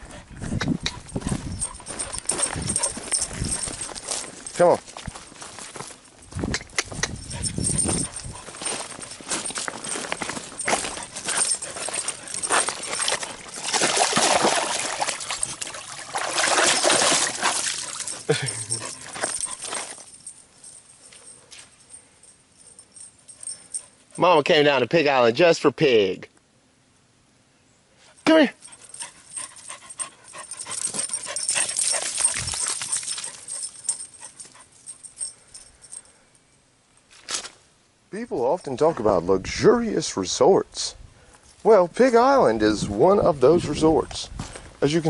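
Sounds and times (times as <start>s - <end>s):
dog paws scraping on rocks: 0.0s - 20.2s, 28.7s - 34.7s
stones clattering: 9.4s - 18.2s
dog splashing in water: 11.4s - 18.3s, 31.5s - 33.5s.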